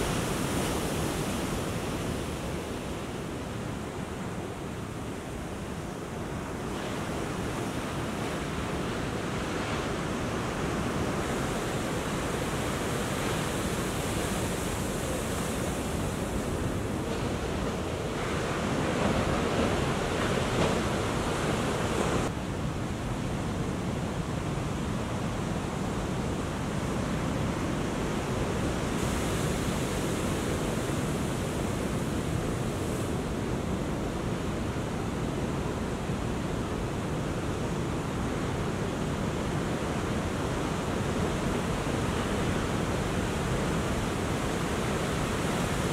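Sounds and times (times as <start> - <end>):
ocean waves breaking: 6.3 - 22.3.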